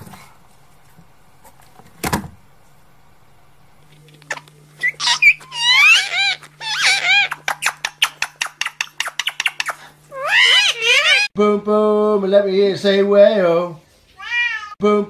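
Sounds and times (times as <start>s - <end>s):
parakeets squawking: 4.3s - 11.3s.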